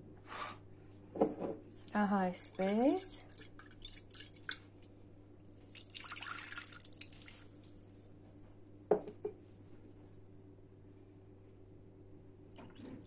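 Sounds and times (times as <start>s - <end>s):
water poured into glass bowl: 5.6s - 7.6s.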